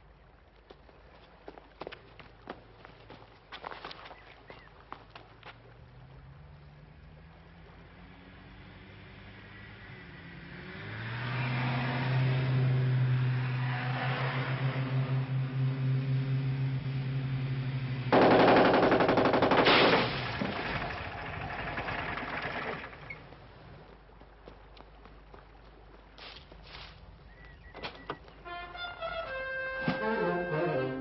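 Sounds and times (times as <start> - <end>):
machine-gun fire: 18.1 - 20.6.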